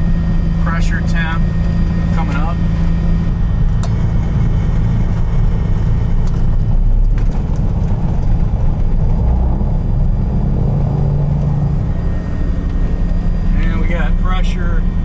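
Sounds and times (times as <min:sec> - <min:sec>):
aircraft piston engines idling: 0:00.4 - 0:06.7, 0:11.4 - 0:15.0.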